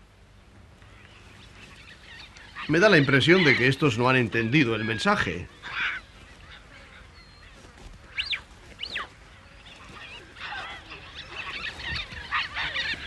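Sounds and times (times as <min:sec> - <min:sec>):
young baboons squealing and screeching: 0:01.6 - 0:13.0.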